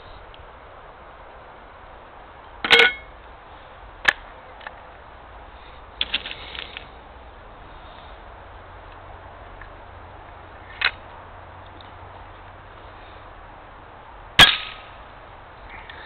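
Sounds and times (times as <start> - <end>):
metal tin ringing clank: 2.6 - 3.1.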